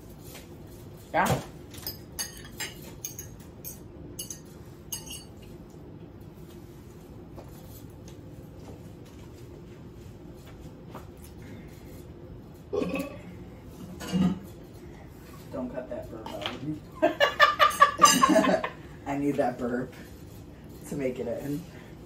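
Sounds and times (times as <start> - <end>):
cutlery and glass clinking: 1.8 - 5.5
loud burp: 12.7 - 13.2.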